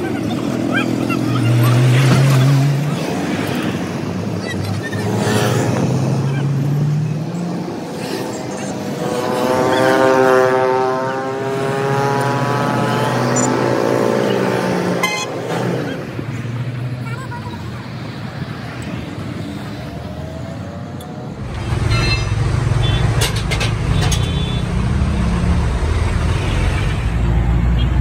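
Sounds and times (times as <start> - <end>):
road traffic: 0.0 - 28.0
vehicle engine passing by: 5.0 - 16.0.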